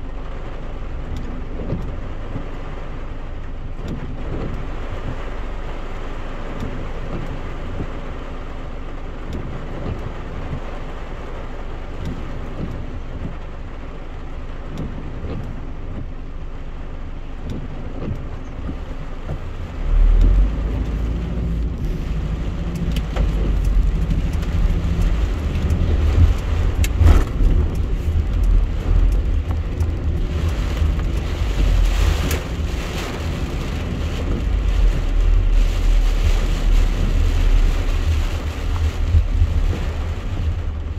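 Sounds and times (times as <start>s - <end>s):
car running noise: 0.0s - 40.9s
heavy rain on car: 0.0s - 40.9s
deep low rumble: 8.8s - 40.9s.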